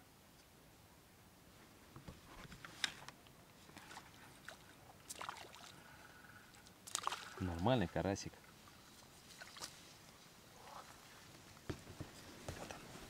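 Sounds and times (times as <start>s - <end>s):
faint water splashing: 3.6s - 11.7s.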